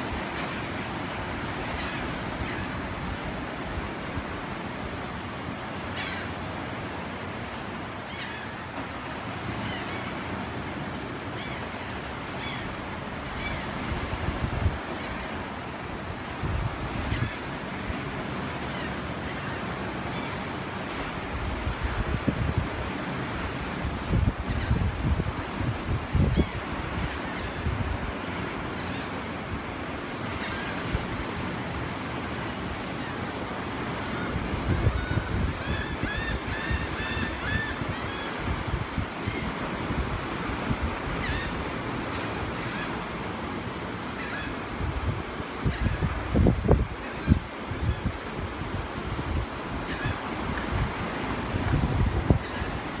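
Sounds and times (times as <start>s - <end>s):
surf breaking on shore: 0.0s - 53.0s
wind: 0.0s - 53.0s
faint gull calls: 1.6s - 2.9s, 5.9s - 6.4s, 8.0s - 8.8s, 11.3s - 13.8s, 17.0s - 17.6s, 26.3s - 27.8s, 30.3s - 30.9s, 33.9s - 38.6s, 41.1s - 43.1s, 44.1s - 44.8s, 45.6s - 46.2s, 49.8s - 50.7s, 52.3s - 53.0s
bird crying: 5.9s - 6.4s, 8.1s - 8.7s, 11.3s - 13.8s, 33.9s - 38.4s, 41.2s - 43.0s
wind buffeting microphone: 21.0s - 29.8s, 33.8s - 41.8s, 44.3s - 53.0s.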